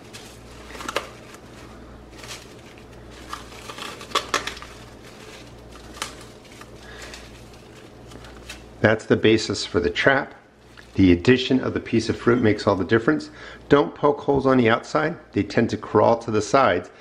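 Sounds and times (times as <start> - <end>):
plastic cling wrap crinkling: 0.0 - 8.9.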